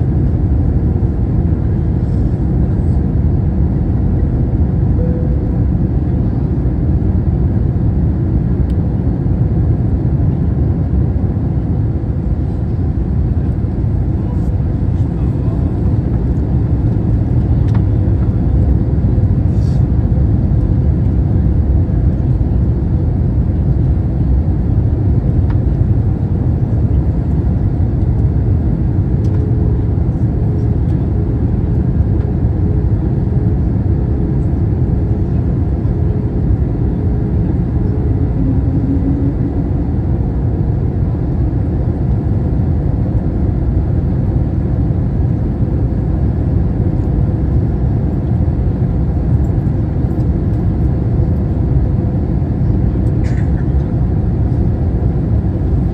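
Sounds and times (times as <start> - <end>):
faint steady hum: 0.0 - 11.0
airliner engines and rushing air: 0.0 - 55.9.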